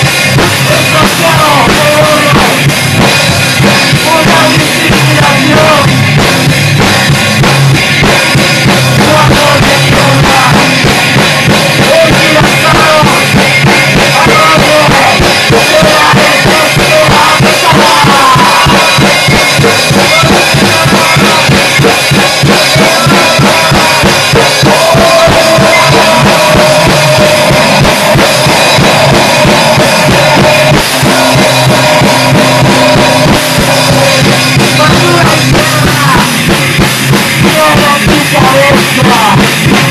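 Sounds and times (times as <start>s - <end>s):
distorted electric guitar: 0.0s - 39.9s
fast dense drumming: 0.0s - 39.9s.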